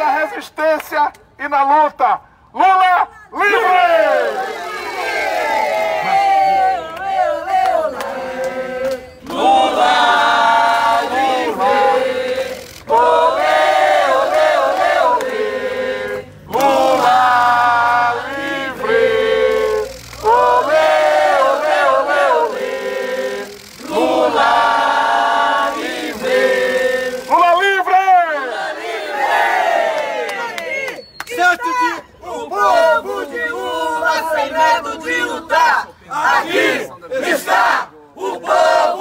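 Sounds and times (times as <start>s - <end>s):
protesters chanting in unison: 3.4s - 39.0s
man's voice through megaphone: 27.3s - 28.5s.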